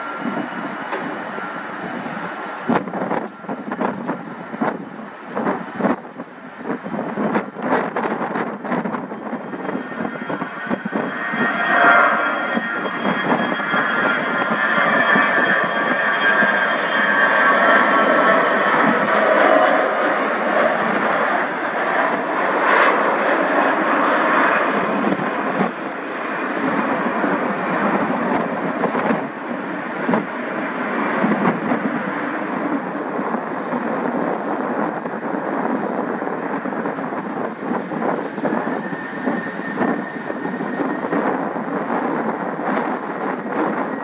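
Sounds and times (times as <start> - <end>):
jet engine whine: 0.0 - 44.0
jet engines roaring: 0.0 - 44.0.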